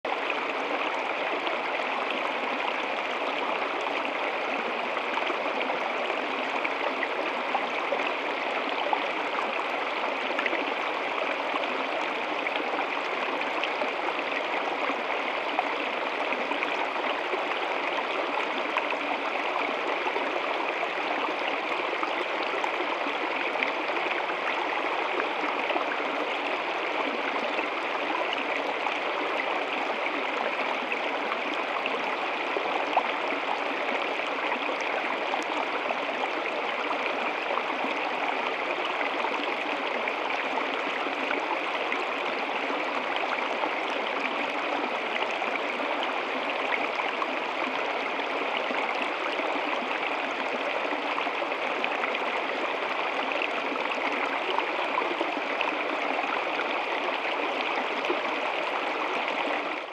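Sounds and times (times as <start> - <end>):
stream splashing over rocks: 0.1 - 59.9.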